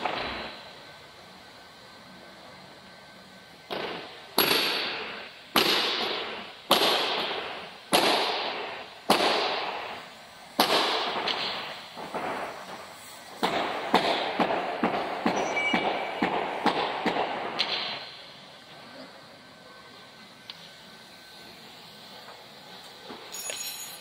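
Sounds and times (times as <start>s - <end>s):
sharp impacts in reverberant room: 3.6s - 18.6s.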